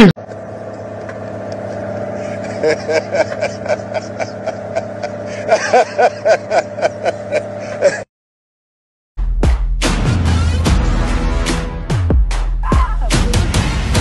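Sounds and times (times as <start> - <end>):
low engine hum: 0.0 - 8.0
man laughing: 1.8 - 8.1, 12.6 - 13.5
loud music: 9.2 - 14.0.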